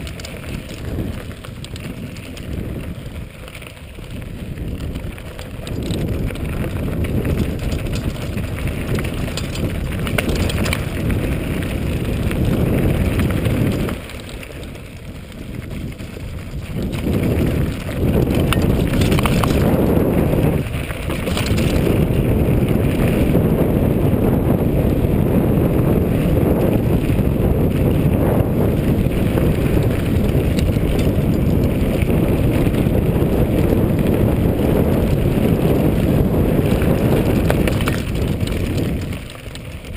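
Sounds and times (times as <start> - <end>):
tyres crunching on stones: 0.0 - 22.3, 36.5 - 39.9
bike frame rattling: 0.0 - 39.9
wind rushing over microphone: 0.0 - 39.9.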